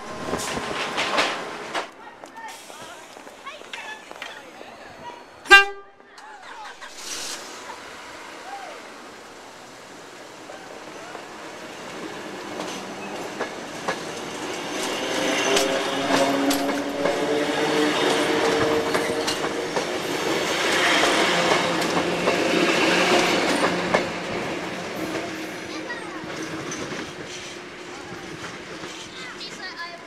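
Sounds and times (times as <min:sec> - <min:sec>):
train wheels clicking over joints: 0:00.3 - 0:04.4, 0:11.8 - 0:30.0
train motor hum: 0:14.2 - 0:25.2.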